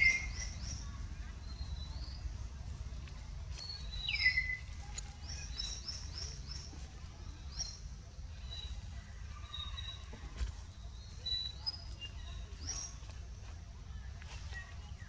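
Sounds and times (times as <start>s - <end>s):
birds chirping: 0.0s - 13.4s
low background rumble: 0.0s - 15.0s.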